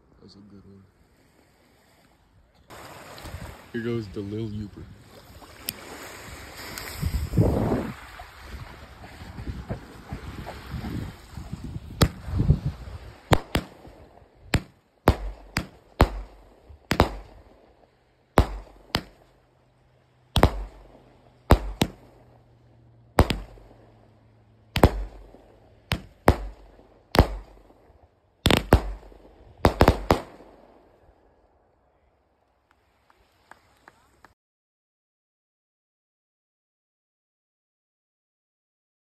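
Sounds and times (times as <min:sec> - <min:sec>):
firework shells bursting: 0:11.9 - 0:12.3, 0:13.2 - 0:19.4, 0:20.3 - 0:22.5, 0:23.2 - 0:24.0, 0:24.7 - 0:31.0.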